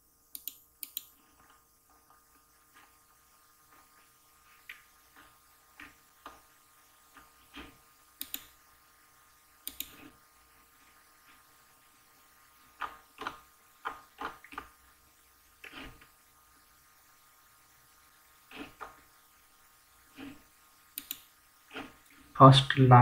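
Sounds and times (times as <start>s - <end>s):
mouse and keyboard clicks: 0.3s - 1.2s, 7.6s - 8.5s, 9.6s - 10.1s, 21.0s - 21.9s.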